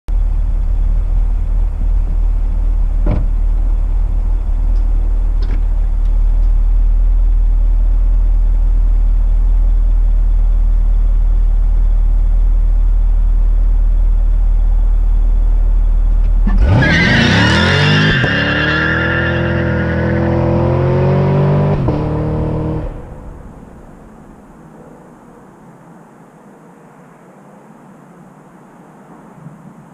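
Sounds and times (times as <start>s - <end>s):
car engine idling: 0.1s - 17.8s, 20.6s - 25.5s
car accelerating through upshifts: 16.2s - 23.6s.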